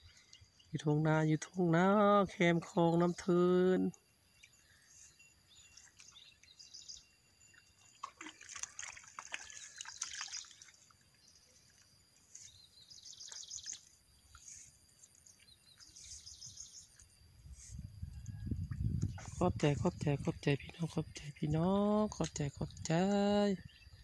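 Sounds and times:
small birds chirping: 0:04.3 - 0:08.0, 0:09.4 - 0:24.0
muddy water splashes: 0:07.8 - 0:17.2, 0:18.6 - 0:23.6.

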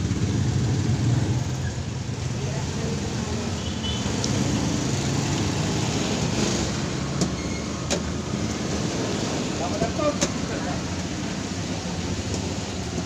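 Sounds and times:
steady background noise: 0:04.4 - 0:13.0.

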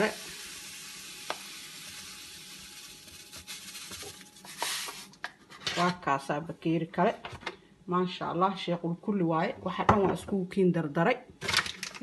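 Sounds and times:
sugar pouring into liquid: 0:00.0 - 0:05.2.

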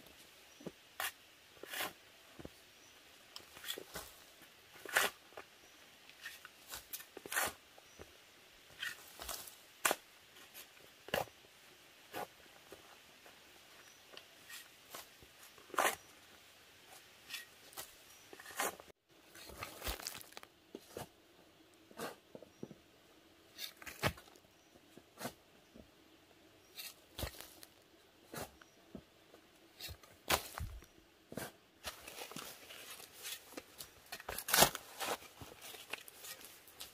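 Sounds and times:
hoe chopping soil: 0:06.2 - 0:07.6, 0:23.6 - 0:24.3, 0:28.3 - 0:28.6, 0:29.8 - 0:36.9
clods of earth tumbling: 0:19.4 - 0:21.1, 0:27.2 - 0:27.8, 0:29.8 - 0:30.9.

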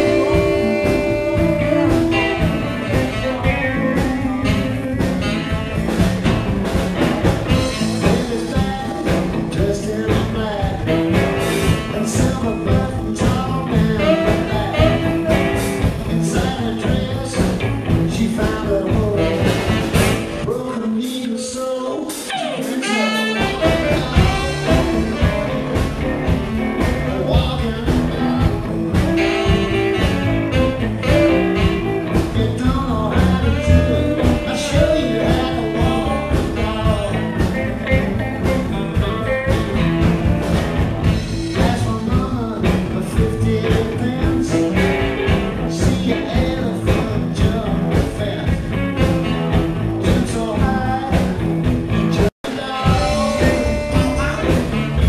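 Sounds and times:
saxophone: 0:00.0 - 0:20.5, 0:22.1 - 0:41.8, 0:51.8 - 0:55.0
blues band playing: 0:00.0 - 0:55.0
electric guitar: 0:00.0 - 0:55.0.

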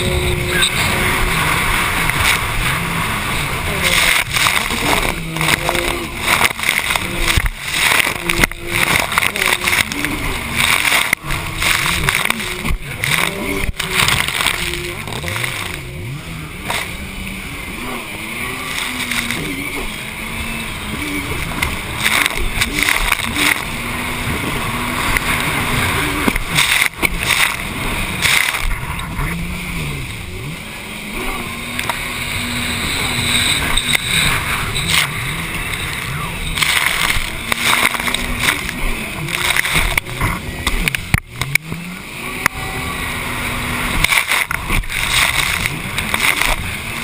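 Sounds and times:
wind and spray rushing: 0:00.0 - 0:17.8
hull slapping water: 0:00.0 - 0:47.0
jet ski engine revving: 0:00.0 - 0:47.0.

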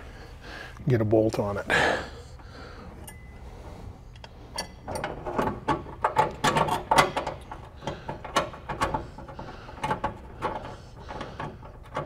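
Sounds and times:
metal bolt clicking and clinking: 0:04.2 - 0:12.0.

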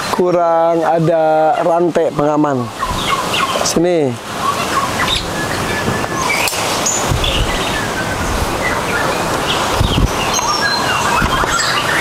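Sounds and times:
birds chirping: 0:00.0 - 0:12.0
steady hiss: 0:00.0 - 0:12.0.

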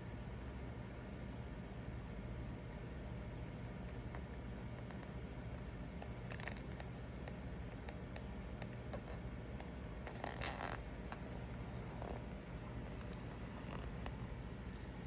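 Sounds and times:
low steady hum: 0:00.0 - 0:15.0
fingertips rubbing paper: 0:10.1 - 0:15.0.

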